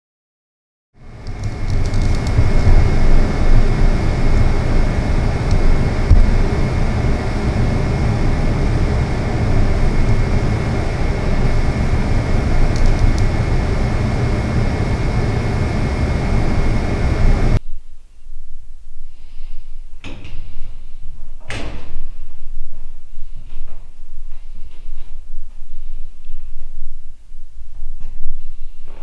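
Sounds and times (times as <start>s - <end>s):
spray booth air rushing: 1.0s - 17.6s
faint steady whine: 1.0s - 29.0s.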